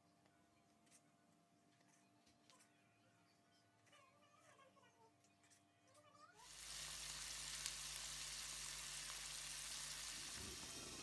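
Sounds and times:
pot of liquid hissing: 6.4 - 11.0.

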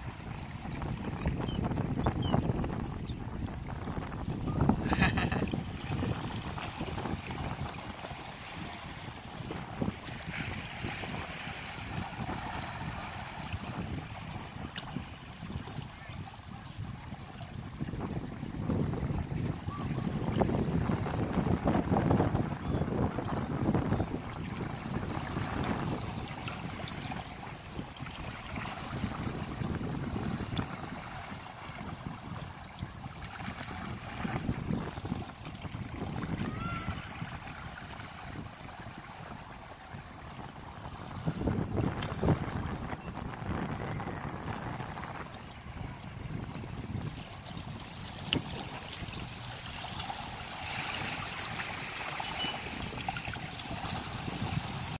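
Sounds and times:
water trickling and gurgling: 0.0 - 55.0
waves lapping against rocks: 0.0 - 55.0
wind buffeting microphone: 0.0 - 55.0
small waves washing among rocks: 46.1 - 55.0.

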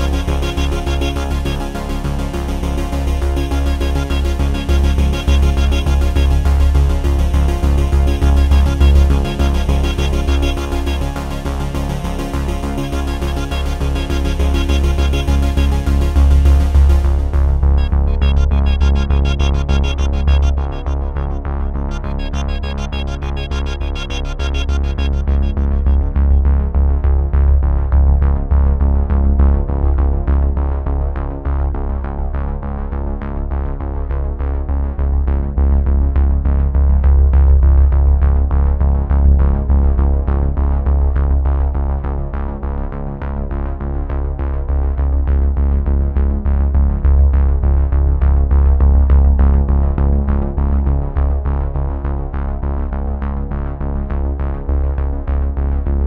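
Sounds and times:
synthesizer music with steady pulse: 0.0 - 32.6.

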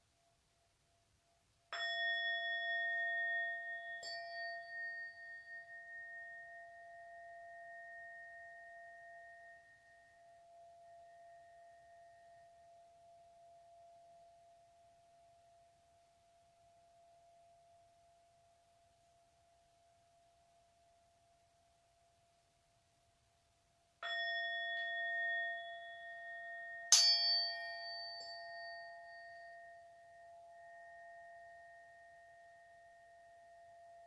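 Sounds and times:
tuning forks ringing: 1.8 - 12.9, 24.0 - 34.0.

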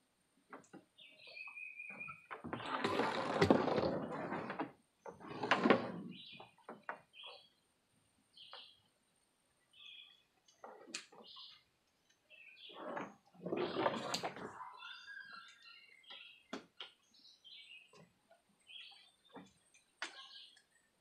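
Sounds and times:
hose dragging over wooden boards: 2.4 - 6.2, 12.7 - 14.6.

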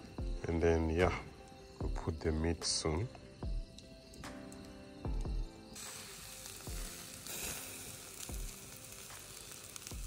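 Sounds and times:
meat sizzling on a grill: 5.0 - 10.0.

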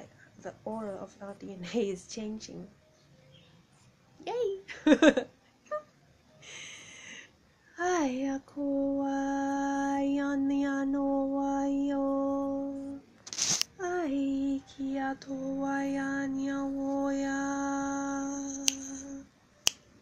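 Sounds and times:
woman singing long held notes: 7.8 - 13.0, 13.8 - 19.3.

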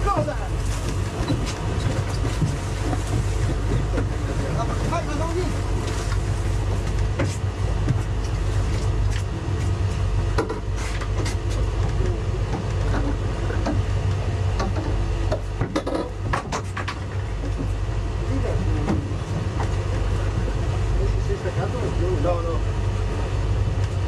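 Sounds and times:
boat engine droning: 0.0 - 24.0
knocks and clatters: 14.6 - 17.8.

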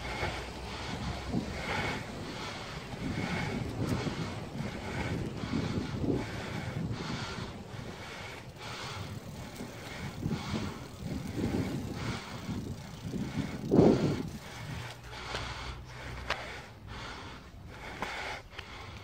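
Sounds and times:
bicycle clicks and rattles: 0.0 - 19.0
low uneven rumble: 0.0 - 19.0
wind buffeting microphone: 0.0 - 19.0.

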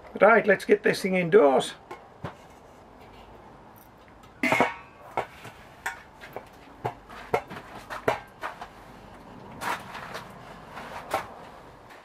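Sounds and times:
metal lid clattering onto pot: 4.4 - 4.9
pot knocking and clinking: 4.4 - 5.3.

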